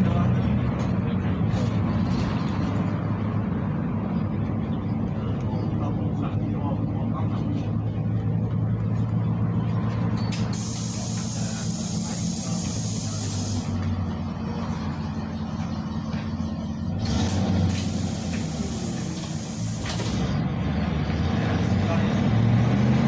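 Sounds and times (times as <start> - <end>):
bus engine drone: 0.0 - 23.0
road and body noise: 0.0 - 23.0
high hiss: 17.7 - 20.2.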